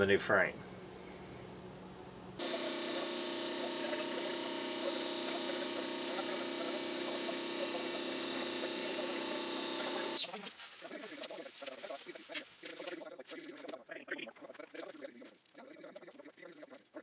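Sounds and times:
orbital sander whining: 0:02.4 - 0:10.2.

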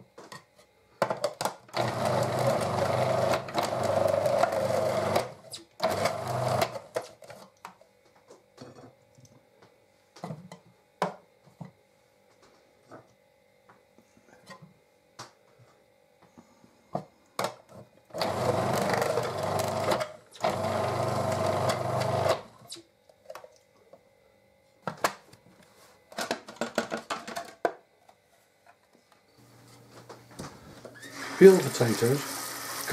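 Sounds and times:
food processor motor running: 0:01.7 - 0:07.0, 0:18.2 - 0:22.5, 0:31.0 - 0:32.9.

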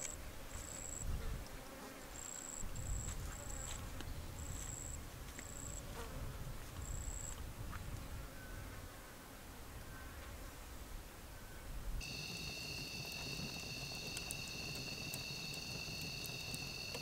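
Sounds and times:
insect high buzzes: 0:12.0 - 0:17.0.

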